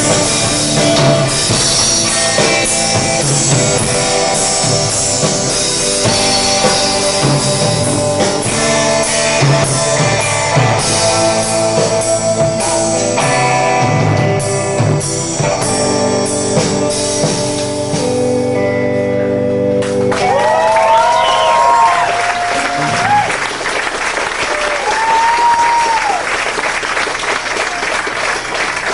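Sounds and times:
drums with cymbal hits: 0:00.0 - 0:18.5
electric guitar strumming: 0:00.0 - 0:23.6.

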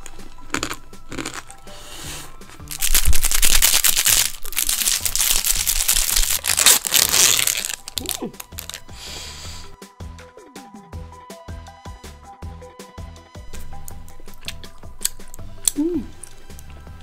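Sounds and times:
crunchy chewing: 0:00.0 - 0:08.9
background music: 0:00.0 - 0:17.0
plastic wrapper crinkling: 0:02.7 - 0:08.9.

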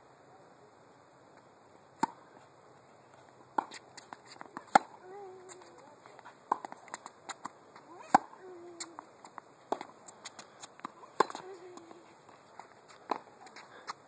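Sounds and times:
tennis ball hit and bouncing: 0:02.0 - 0:02.2, 0:03.6 - 0:05.8, 0:06.5 - 0:09.0, 0:09.7 - 0:12.0, 0:12.6 - 0:13.6.

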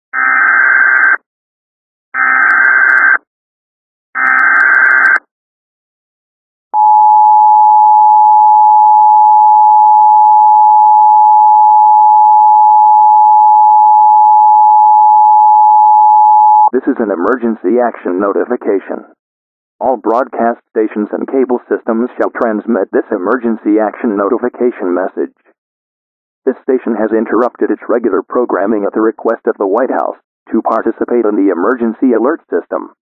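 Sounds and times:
two-tone attention signal: 0:06.8 - 0:16.7.

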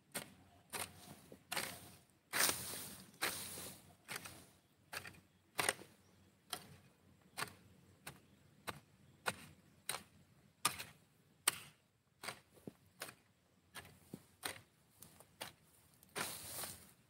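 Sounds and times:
dry grass crackling: 0:00.7 - 0:05.8, 0:12.2 - 0:17.0.

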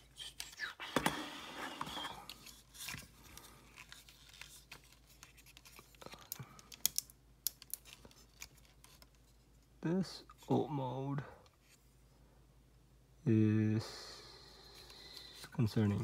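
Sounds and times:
plastic toy parts clicking: 0:06.6 - 0:08.0.

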